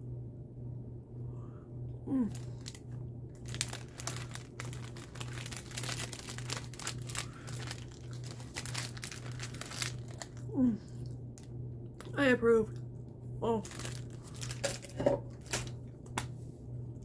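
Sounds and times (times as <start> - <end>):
low steady hum: 0.0 - 17.0
plastic wrapper crinkling: 2.3 - 2.8, 3.4 - 10.5, 13.6 - 16.3.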